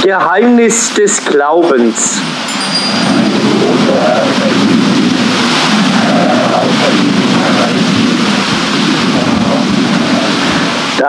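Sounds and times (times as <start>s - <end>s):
flowing river: 2.3s - 11.0s
water wheel rushing water: 2.3s - 11.0s.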